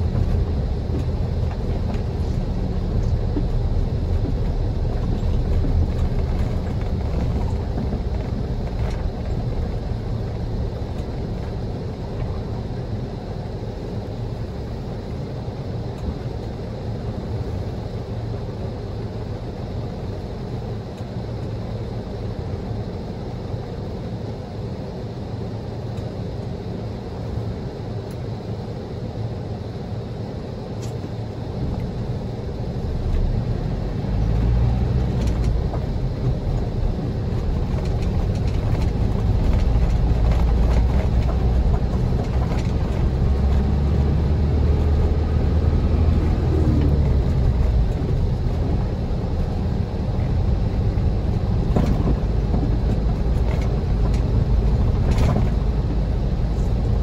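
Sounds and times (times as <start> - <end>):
car tyres and engine rumble: 0.0 - 57.0.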